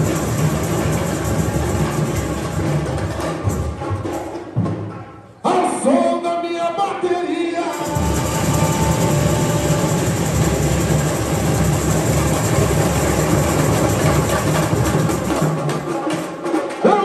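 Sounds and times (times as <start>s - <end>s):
bass and snare drums playing: 0.0s - 5.0s, 7.7s - 17.0s
person singing: 5.5s - 10.8s.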